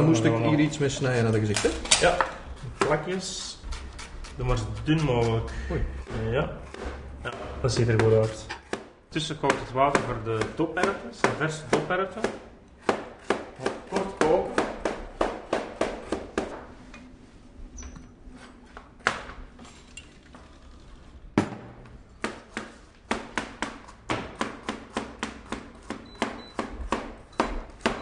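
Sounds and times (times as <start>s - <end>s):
knife chopping on cutting board: 3.7s - 16.7s, 22.2s - 28.0s.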